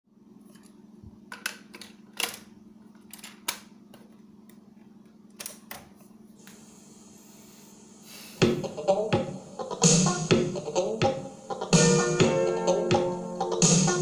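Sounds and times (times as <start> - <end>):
tape hiss: 6.4 - 14.0.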